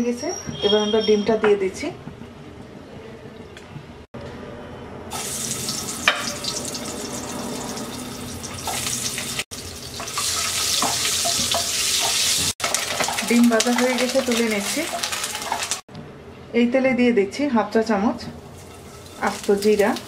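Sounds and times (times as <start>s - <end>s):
eggs sizzling in hot oil: 5.1s - 15.8s, 18.5s - 20.0s
spatula scraping a pan: 13.8s - 15.8s, 18.6s - 20.0s.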